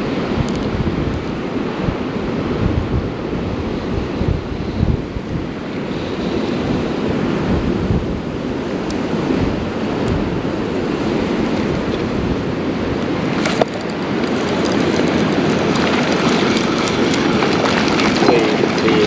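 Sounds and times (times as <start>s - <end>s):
wind on microphone: 0.0s - 19.0s
creek water rushing: 8.3s - 19.0s
rapid faint ticking: 13.0s - 19.0s.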